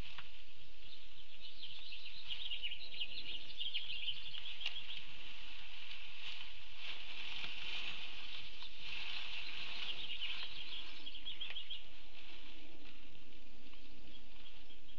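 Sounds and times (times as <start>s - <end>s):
rapid high chirping chorus: 0.7s - 5.6s, 8.4s - 12.4s.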